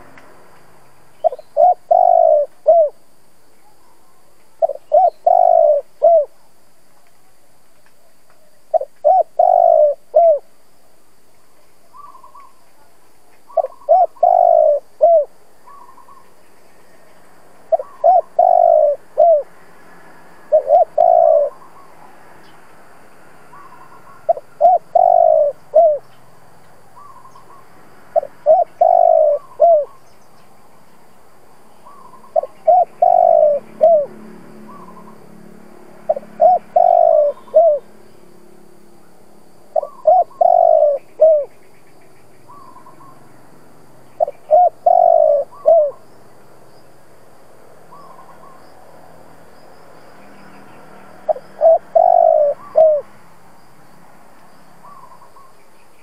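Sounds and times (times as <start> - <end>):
dove cooing: 1.2 - 3.0, 3.7 - 6.4, 8.7 - 10.5, 11.9 - 12.6, 13.5 - 16.2, 17.7 - 19.5, 20.5 - 21.8, 23.5 - 26.0, 28.2 - 30.0, 31.8 - 35.2, 36.1 - 37.9, 39.7 - 41.5, 44.2 - 46.0, 51.3 - 53.1.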